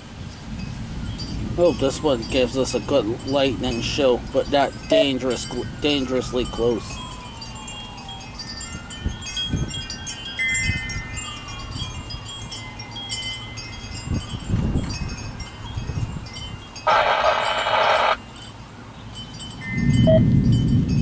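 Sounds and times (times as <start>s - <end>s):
wind rumbling on microphone: 0.0s - 21.0s
wind chimes ringing: 0.3s - 21.0s
loud sound: 16.9s - 18.2s.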